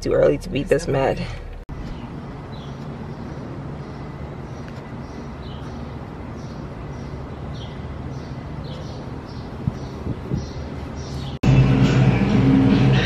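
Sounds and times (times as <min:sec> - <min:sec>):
low outdoor rumble: 0:00.0 - 0:13.0
high bird chirps: 0:01.8 - 0:11.4.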